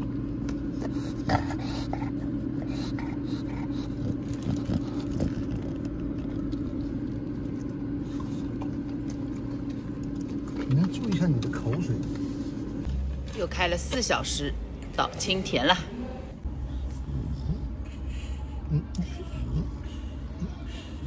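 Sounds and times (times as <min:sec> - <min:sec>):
dog chewing: 0:00.0 - 0:13.4.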